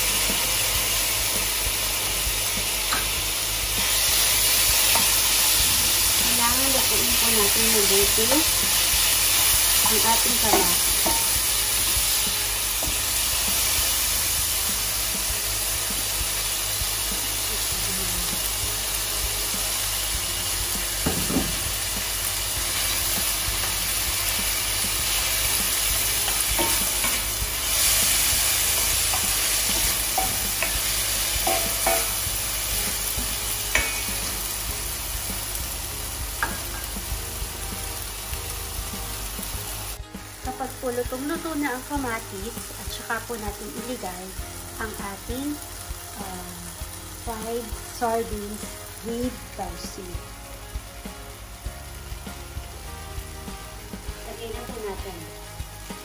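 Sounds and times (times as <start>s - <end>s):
vegetables sizzling in oil: 0.0s - 56.0s
plastic spoon knocking on pan: 21.0s - 21.7s.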